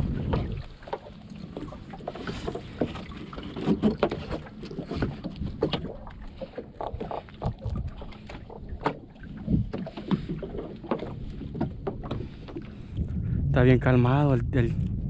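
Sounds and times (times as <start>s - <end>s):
steady low rumble: 0.0s - 0.8s, 11.2s - 15.0s
wet net scraping against hull: 0.0s - 12.9s.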